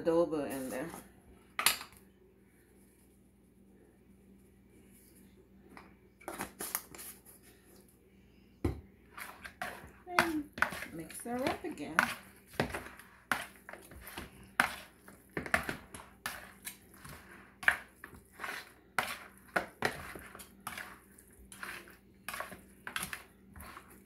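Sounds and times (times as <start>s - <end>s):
metal fork scraping a bowl: 9.2s - 24.0s.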